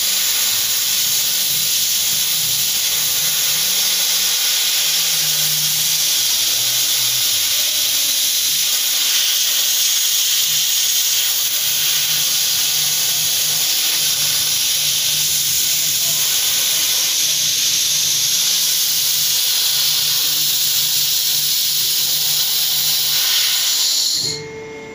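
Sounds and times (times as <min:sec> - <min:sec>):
loud hiss of gas blowing: 0:00.0 - 0:24.4.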